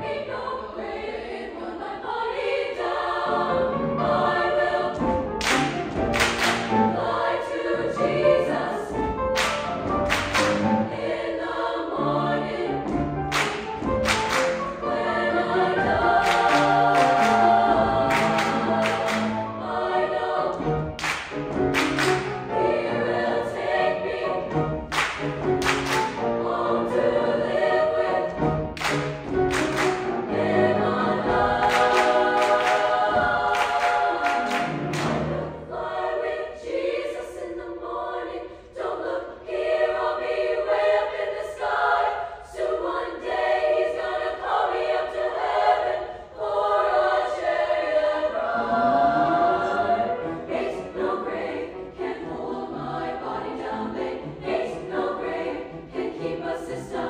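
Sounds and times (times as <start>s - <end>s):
choir singing gospel spiritual: 0.0s - 57.0s
piano accompaniment: 3.3s - 36.3s, 48.2s - 56.8s.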